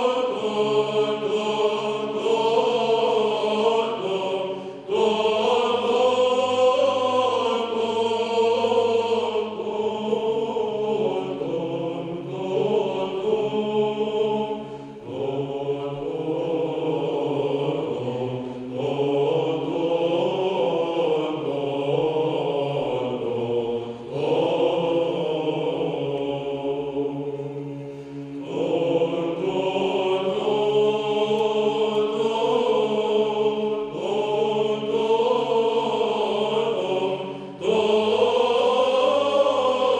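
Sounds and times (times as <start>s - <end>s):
low held vocal drone: 0.0s - 39.9s
male choir chanting: 0.0s - 39.9s.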